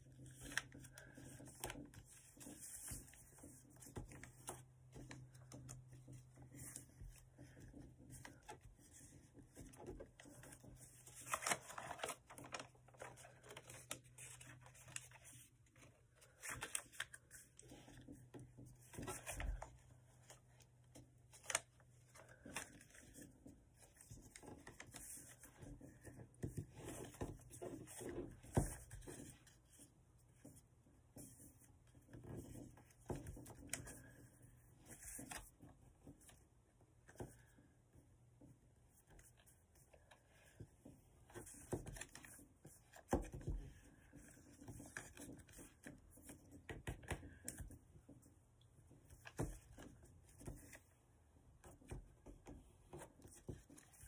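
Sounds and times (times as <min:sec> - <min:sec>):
paper rustling and crinkling: 0:00.0 - 0:30.6.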